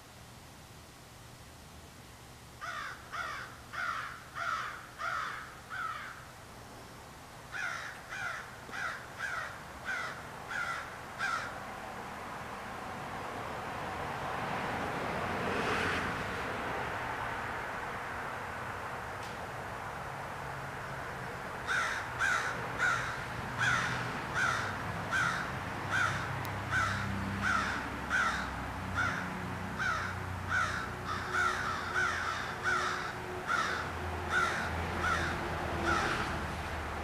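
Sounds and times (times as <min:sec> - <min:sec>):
crow cawing: 0:02.6 - 0:06.2, 0:07.5 - 0:11.6, 0:21.6 - 0:36.2.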